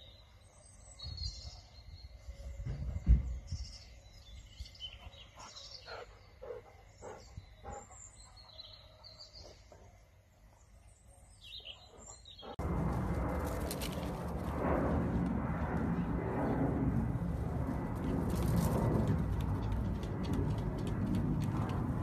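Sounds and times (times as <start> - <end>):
small birds chirping: 0.0 - 12.6
loud steady rushing noise: 12.6 - 22.0.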